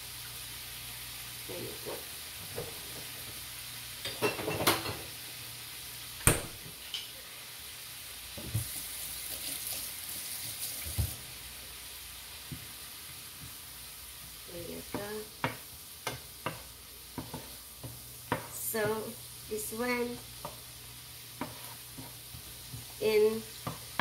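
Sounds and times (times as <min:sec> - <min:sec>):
greens sizzling in a frying pan: 0:00.0 - 0:24.0
wooden spatula stirring pan: 0:14.3 - 0:24.0.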